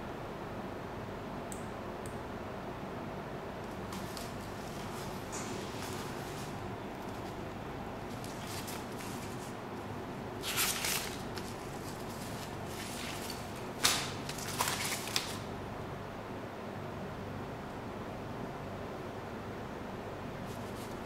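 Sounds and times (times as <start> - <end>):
steady low hum: 0.0 - 21.0
paper pages turning: 3.8 - 9.6, 10.4 - 15.5.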